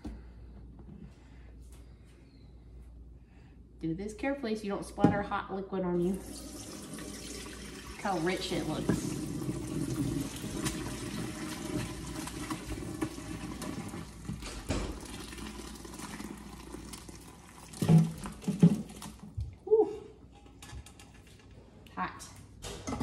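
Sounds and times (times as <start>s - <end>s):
broth pouring and splashing: 6.2s - 19.2s.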